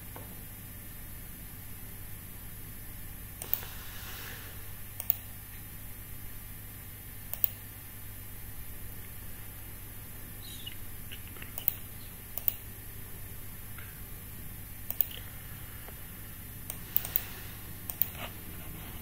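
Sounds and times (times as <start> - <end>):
computer mouse clicking: 3.4 - 3.8, 5.0 - 5.3, 7.3 - 7.6, 11.1 - 12.6, 14.9 - 15.2, 16.7 - 18.3.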